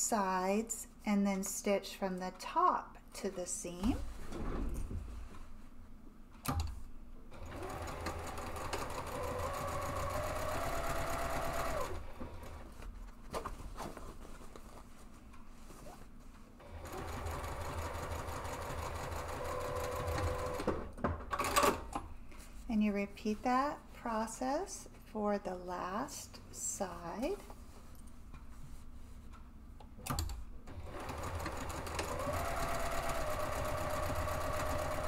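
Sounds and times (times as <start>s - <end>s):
sewing machine stitching: 7.3s - 12.7s, 16.6s - 21.8s, 30.7s - 35.0s.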